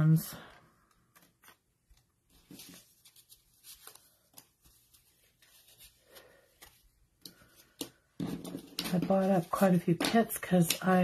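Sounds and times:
paper rustling: 0.9 - 11.0.

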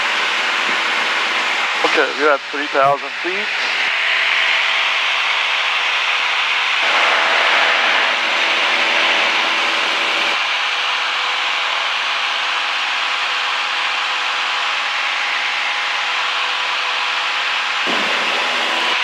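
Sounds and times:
propeller plane engine drone: 0.0 - 19.0.

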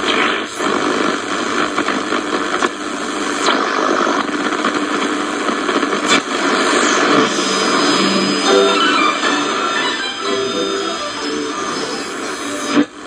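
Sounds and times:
radio static and hiss: 0.0 - 13.0
radio signals sweeping past: 6.0 - 10.1.

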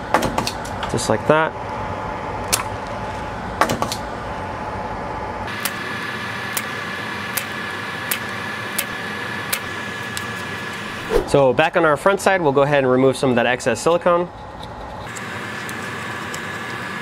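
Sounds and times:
steady hum: 6.2 - 12.0.

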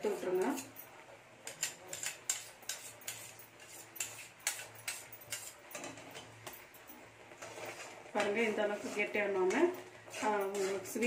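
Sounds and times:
spatula scraping metal pan: 1.5 - 6.0, 7.4 - 11.0.

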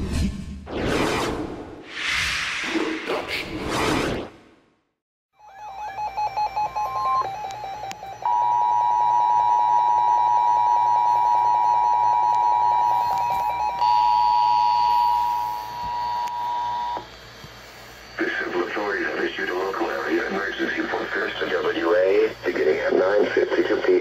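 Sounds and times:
second alarm tone: 5.4 - 17.1
steady alarm tone: 5.4 - 17.2.

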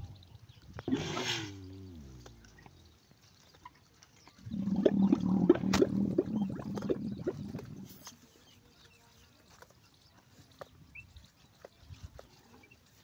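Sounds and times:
camel growling: 0.8 - 2.8, 4.4 - 8.0.

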